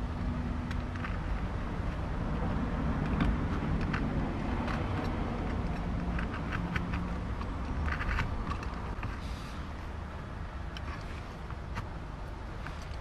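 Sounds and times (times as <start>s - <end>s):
hands clicking and rustling: 2.9s - 9.2s.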